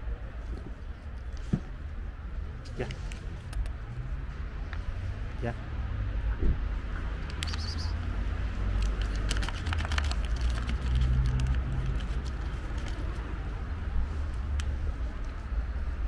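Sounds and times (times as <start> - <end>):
cat eating: 8.7 - 13.2
plastic pouch crinkling: 8.7 - 13.2.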